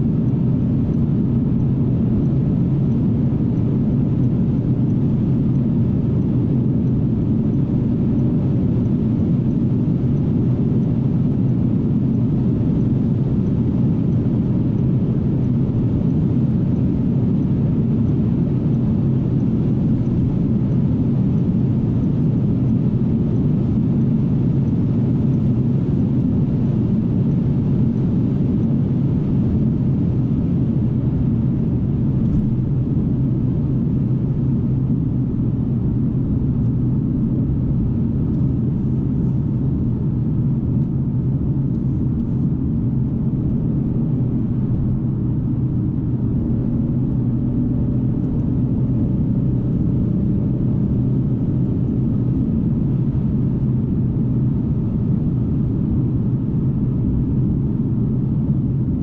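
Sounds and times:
wind noise: 0:00.0 - 0:59.0.

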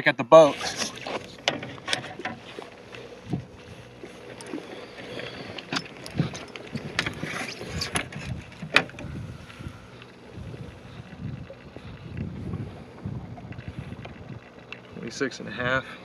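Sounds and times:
water: 0:00.0 - 0:16.0
wind: 0:00.0 - 0:16.0
clicks and knocks on boat deck: 0:00.8 - 0:02.6, 0:04.3 - 0:09.3.

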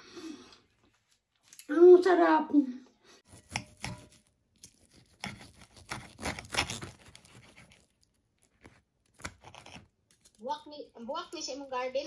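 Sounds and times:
bread crust crackling and tearing: 0:03.3 - 0:10.4.

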